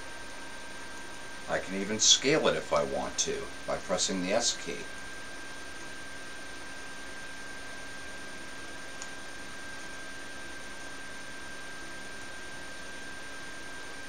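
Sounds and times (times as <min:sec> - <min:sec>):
steady hiss: 0:00.0 - 0:05.0
thin high whine: 0:00.0 - 0:14.0.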